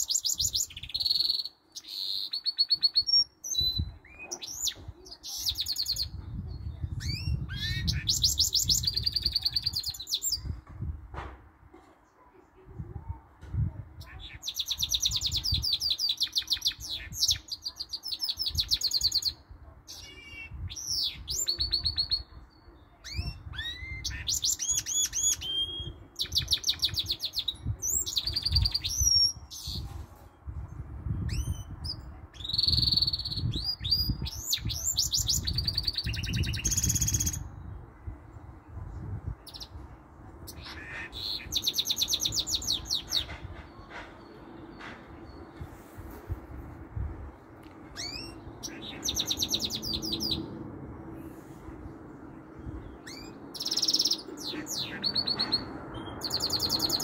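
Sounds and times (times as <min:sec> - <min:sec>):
bird singing fast trills: 0:00.0 - 0:06.2, 0:06.8 - 0:10.5, 0:14.1 - 0:22.4, 0:23.1 - 0:29.8, 0:31.2 - 0:37.8, 0:40.5 - 0:43.3, 0:48.0 - 0:50.6, 0:52.8 - 0:57.0.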